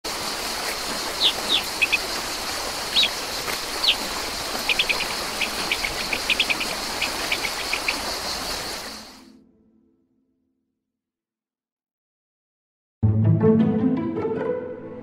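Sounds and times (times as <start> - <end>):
high insect drone: 0.1 - 9.3
steady hiss: 0.1 - 9.3
bird chirping: 0.4 - 9.2.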